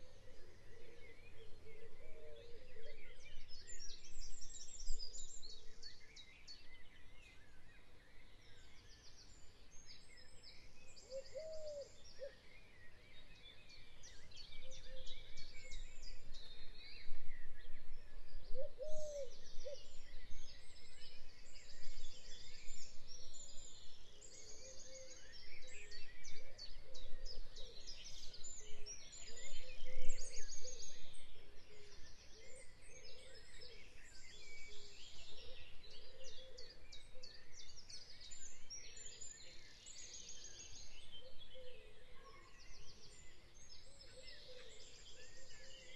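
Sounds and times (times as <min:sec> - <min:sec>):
small birds chirping and trilling: 0:00.0 - 0:45.9.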